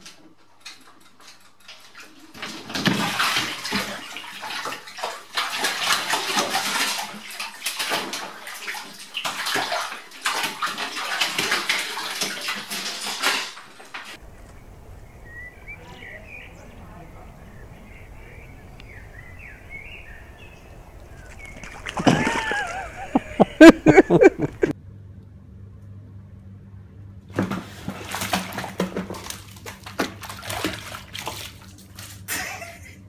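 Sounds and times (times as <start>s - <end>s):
water splashing in bathtub: 0.0s - 14.2s, 18.2s - 24.7s, 27.4s - 32.6s.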